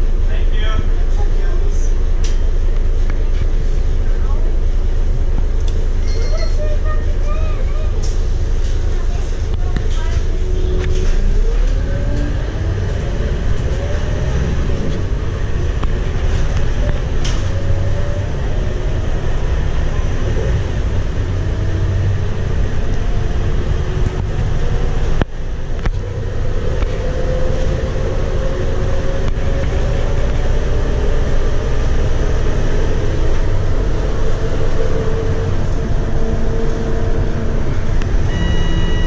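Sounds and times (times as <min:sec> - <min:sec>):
bus diesel engine running: 0:00.0 - 0:39.0
road rumble: 0:00.0 - 0:39.0
whine rising in pitch: 0:35.0 - 0:39.0.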